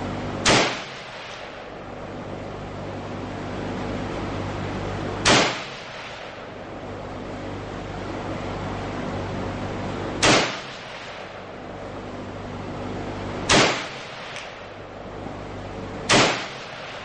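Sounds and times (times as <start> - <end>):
steady low hum: 0.0 - 17.0
rifle shots with echo: 0.4 - 1.7, 5.2 - 6.4, 10.2 - 11.4, 13.5 - 14.6, 16.1 - 17.0.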